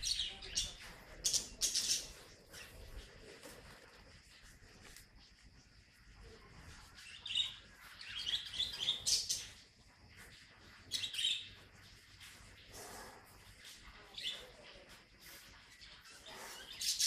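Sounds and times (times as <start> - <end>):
high-pitched chirping calls: 0.0 - 2.8.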